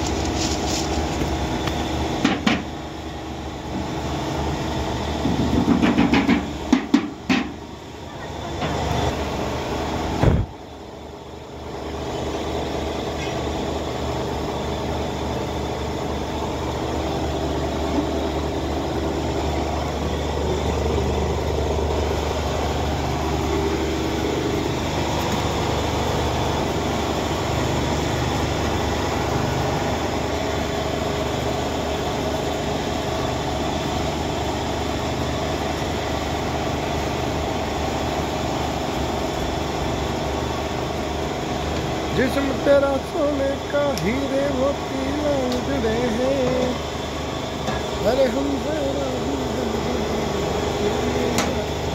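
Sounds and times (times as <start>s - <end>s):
electric flour mill humming: 10.9s - 51.9s.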